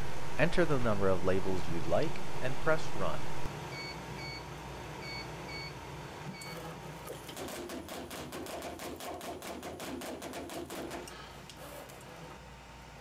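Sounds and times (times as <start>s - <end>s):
die-cutter clattering: 6.4s - 12.2s.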